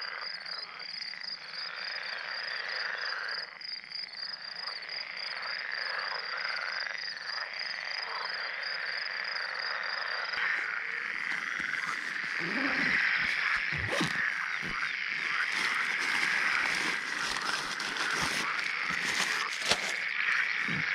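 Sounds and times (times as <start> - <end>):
frogs croaking: 0.0 - 20.9
backpack rustling and knocking: 11.1 - 20.0.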